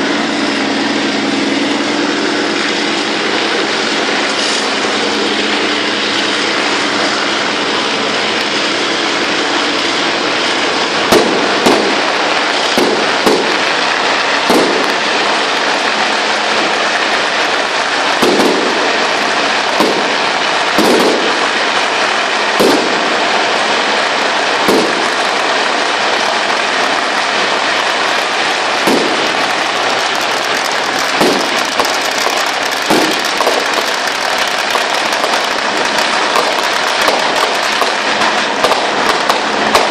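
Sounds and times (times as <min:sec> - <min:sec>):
firecrackers crackling: 0:00.0 - 0:39.9
firecracker bangs: 0:10.8 - 0:39.9.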